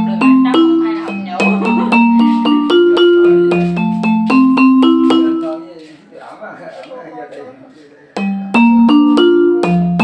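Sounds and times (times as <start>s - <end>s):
electronic percussion pad notes: 0.0s - 6.0s, 8.2s - 10.0s.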